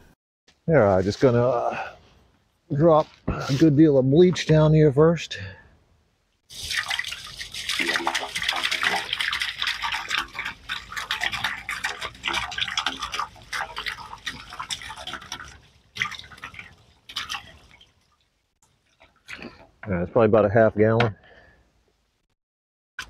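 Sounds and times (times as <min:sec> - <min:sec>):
liquid pouring and gurgling: 0:06.5 - 0:19.8.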